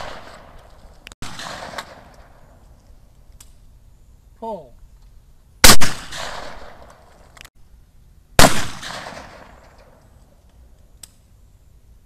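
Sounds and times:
shotgun shots with echo: 0.0s - 0.5s, 1.2s - 2.1s, 5.6s - 6.9s, 8.4s - 9.8s.

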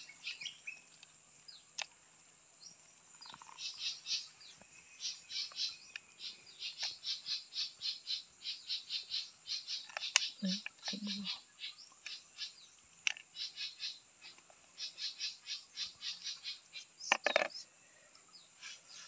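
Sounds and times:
small animal chirping: 5.0s - 12.5s.

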